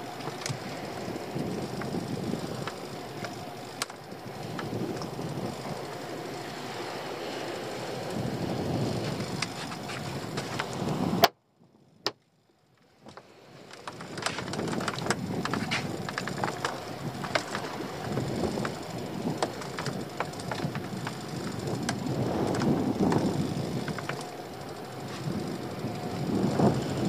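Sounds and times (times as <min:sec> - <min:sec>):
light clicks and knocks: 0:00.0 - 0:06.0, 0:13.0 - 0:24.4
wind on microphone: 0:00.0 - 0:06.8, 0:07.6 - 0:11.3, 0:13.9 - 0:27.0
water slapping against boat: 0:13.0 - 0:27.0.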